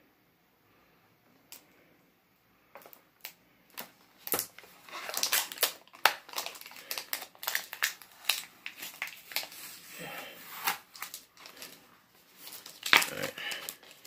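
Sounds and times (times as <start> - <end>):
shrink wrap crinkling and tearing: 2.8 - 14.0.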